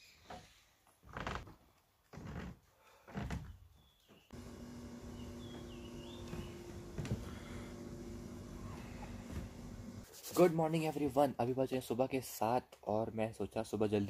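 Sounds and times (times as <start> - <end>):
low hum: 4.4 - 10.0
flip-flop footsteps on wooden decking: 5.4 - 7.7, 8.8 - 9.6.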